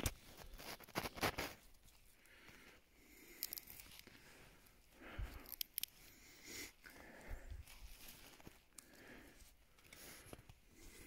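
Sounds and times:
roots tearing from soil: 0:00.0 - 0:02.0
faint crackles: 0:00.0 - 0:11.0.

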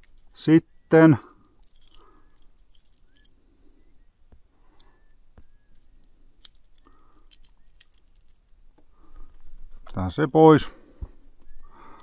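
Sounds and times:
fishing tackle clicking and rattling: 0:00.0 - 0:03.4, 0:04.8 - 0:08.6, 0:11.4 - 0:12.0.

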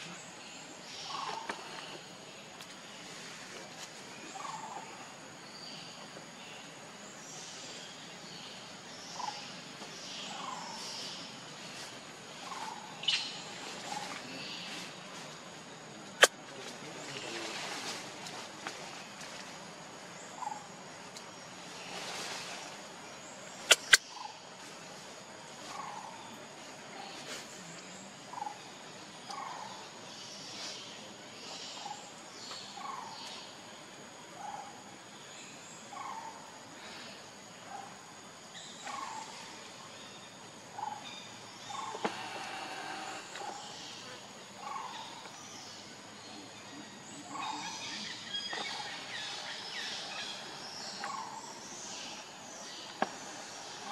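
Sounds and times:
outdoor background noise: 0:00.0 - 0:53.9
steady background hiss: 0:00.0 - 0:53.9
short bird chirps: 0:23.6 - 0:24.3
sharp clicks: 0:23.7 - 0:24.0.

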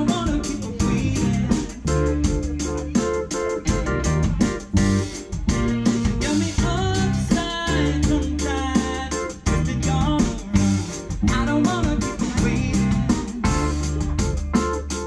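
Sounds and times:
male lead vocal: 0:00.0 - 0:03.8, 0:06.0 - 0:14.7
live band playing: 0:00.0 - 0:15.0.

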